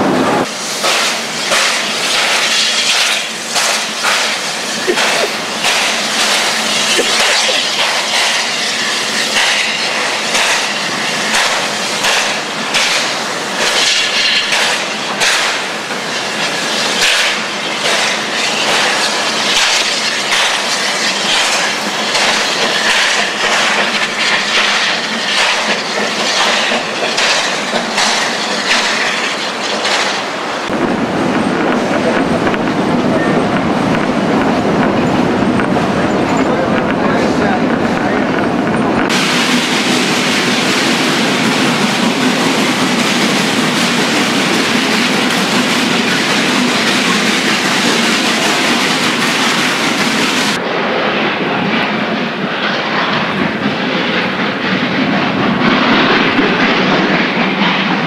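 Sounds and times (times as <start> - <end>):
loud hiss of steam: 0.0 - 30.7, 39.1 - 50.6
train rolling rumble: 0.0 - 58.0
steam locomotive exhaust chuffing: 0.4 - 50.6.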